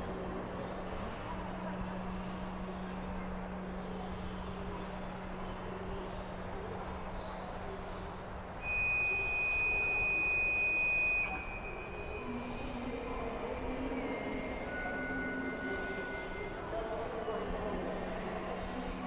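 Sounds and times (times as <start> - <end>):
high whistle-like tone: 8.6 - 16.6.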